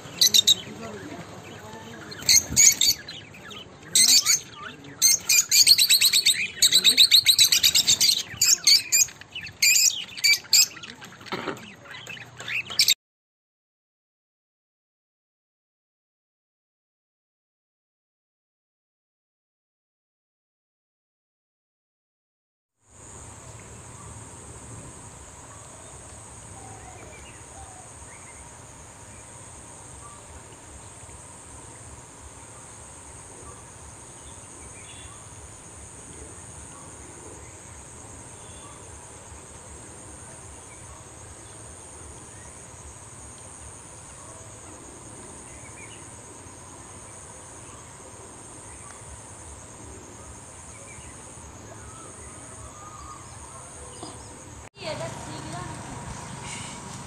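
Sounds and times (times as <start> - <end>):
faint bird chirps: 0.0 - 13.0, 23.3 - 42.6, 49.8 - 55.6
trilling insects: 0.0 - 13.0, 22.9 - 57.0.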